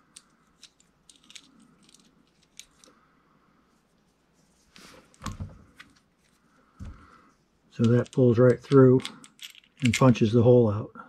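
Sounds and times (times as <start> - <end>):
small metal clicks and clinks: 0.1 - 2.9, 7.8 - 10.2.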